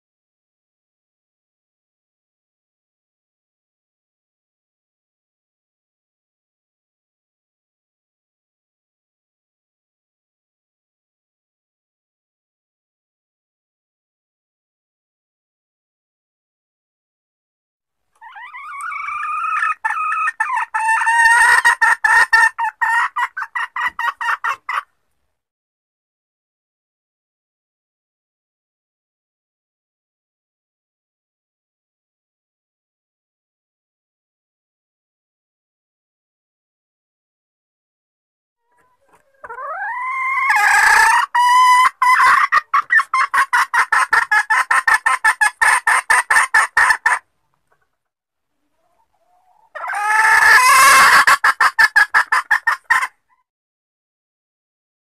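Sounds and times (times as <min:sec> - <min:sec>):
junglefowl hen calling: 0:18.2 - 0:24.9, 0:38.6 - 0:47.8, 0:48.7 - 0:53.4.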